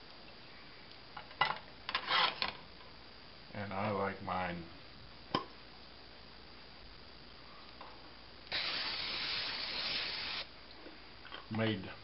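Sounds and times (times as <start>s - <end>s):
aerosol spray hissing: 8.5s - 10.5s.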